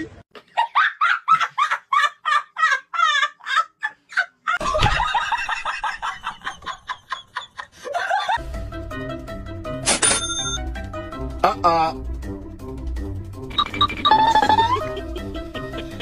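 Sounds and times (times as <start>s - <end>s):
background music with bass line: 8.4s - 16.0s.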